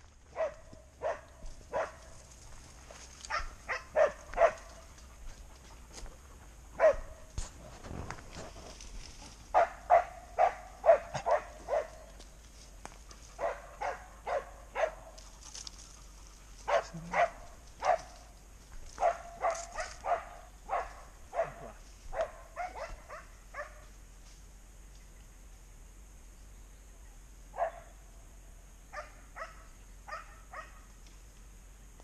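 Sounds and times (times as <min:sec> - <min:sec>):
dog barking: 0:00.3 - 0:02.1, 0:03.2 - 0:04.9, 0:06.8 - 0:07.3, 0:09.5 - 0:12.1, 0:13.4 - 0:15.2, 0:16.6 - 0:18.2, 0:19.0 - 0:23.9, 0:27.6 - 0:27.9, 0:28.9 - 0:30.9.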